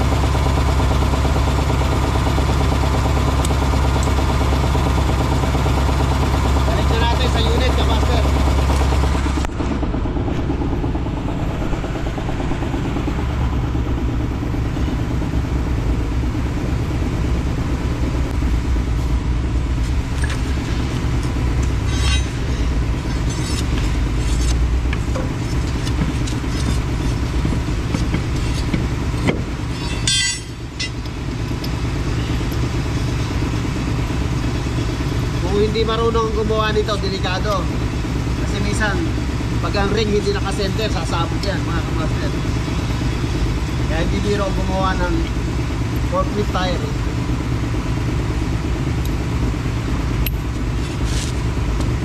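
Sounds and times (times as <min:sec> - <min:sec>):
engine idling with low rumble: 0:00.0 - 0:52.0
sharp metal clicks and clanks: 0:21.0 - 0:31.8.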